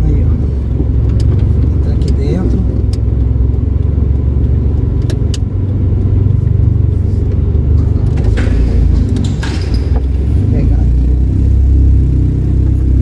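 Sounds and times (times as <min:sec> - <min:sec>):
car engine and road rumble: 0:00.0 - 0:13.0.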